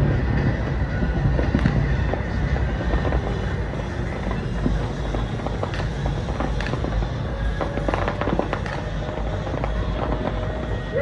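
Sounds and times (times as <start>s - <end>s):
firework pops: 0.0s - 10.9s
distant fireworks rumbling: 0.0s - 11.0s.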